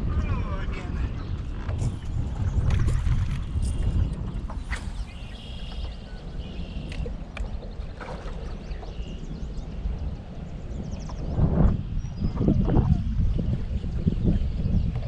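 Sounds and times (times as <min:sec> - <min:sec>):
wind and water rumble: 0:00.0 - 0:15.0
faint high chirps and clicks: 0:03.6 - 0:07.7.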